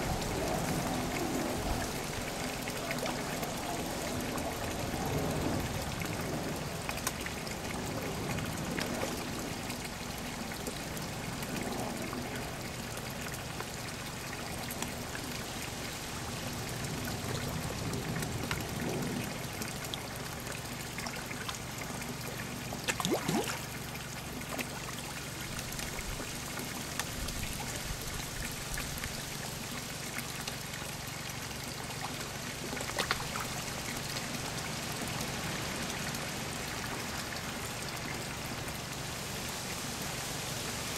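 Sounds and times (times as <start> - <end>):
pond water trickling: 0.0 - 40.9
sharp water splashes: 22.7 - 24.8.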